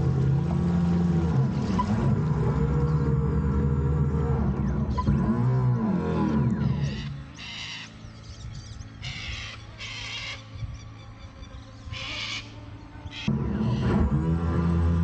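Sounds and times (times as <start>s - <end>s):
birds cawing: 6.7s - 8.0s, 9.0s - 10.6s.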